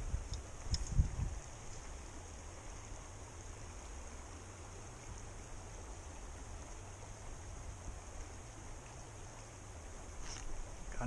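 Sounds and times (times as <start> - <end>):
wind buffeting microphone: 0.0 - 1.6.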